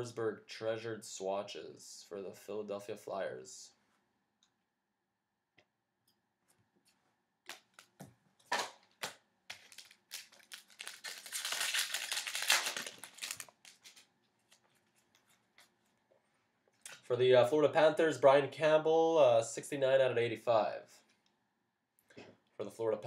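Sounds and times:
cards clicking and rustling: 0:07.5 - 0:15.7
card wrapper crinkling: 0:08.6 - 0:15.7.

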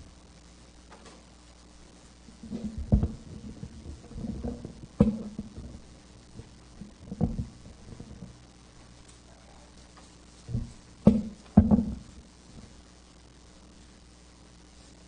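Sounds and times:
dull thumps and knocks: 0:02.4 - 0:08.3, 0:10.5 - 0:12.7.

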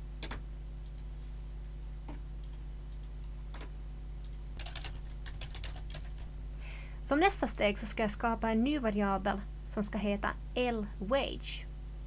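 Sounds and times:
low electrical hum: 0:00.0 - 0:12.0
keyboard typing: 0:00.2 - 0:01.1, 0:02.4 - 0:06.3.

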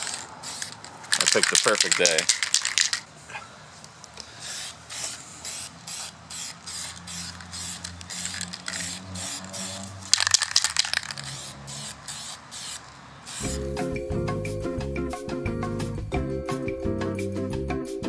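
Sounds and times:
spray paint can hissing bursts: 0:00.0 - 0:03.0, 0:04.4 - 0:13.6.

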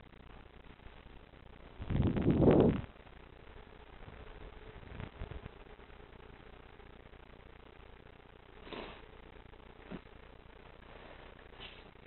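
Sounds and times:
light hum: 0:00.0 - 0:12.0.

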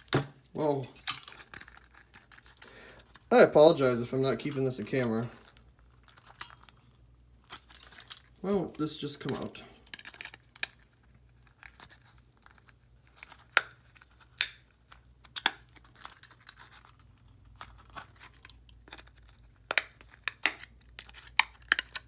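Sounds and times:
plastic clicking and cracking: 0:07.5 - 0:22.0.

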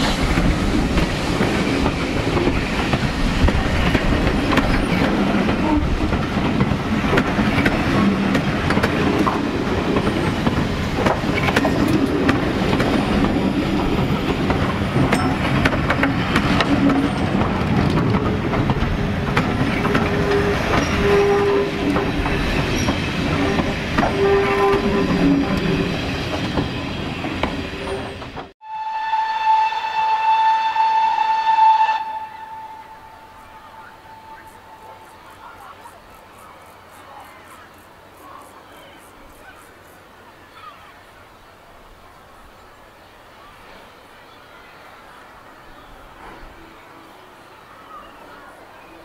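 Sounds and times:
clickety-clack of rail joints: 0:00.0 - 0:28.5
train wheels rumbling: 0:00.0 - 0:28.6
steam locomotive whistle: 0:19.8 - 0:22.1, 0:22.8 - 0:25.8, 0:28.6 - 0:35.5.

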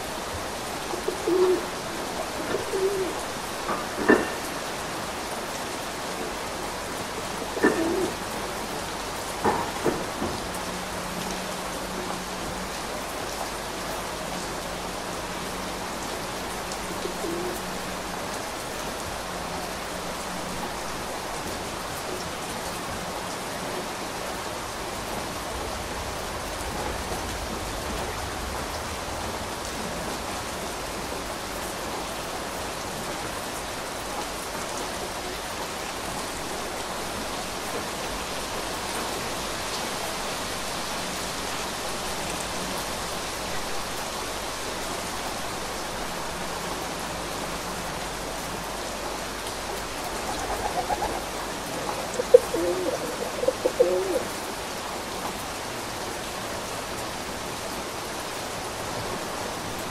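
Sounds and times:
steady rainfall: 0:00.0 - 0:59.9
bird calling: 0:50.0 - 0:54.3.

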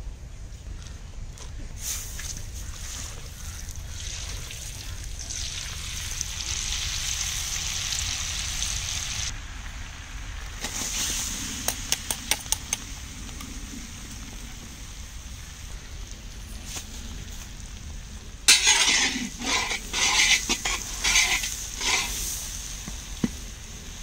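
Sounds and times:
butter sizzling in a pan: 0:05.2 - 0:09.3, 0:18.5 - 0:24.0.

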